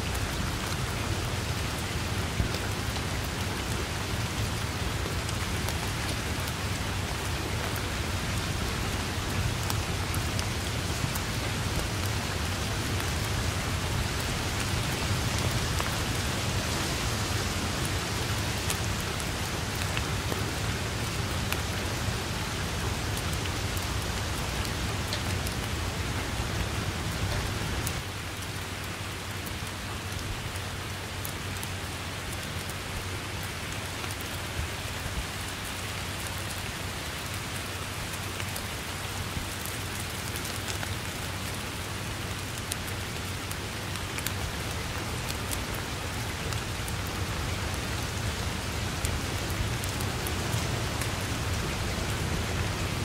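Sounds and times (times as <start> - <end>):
steady rain: 0.0 - 53.0.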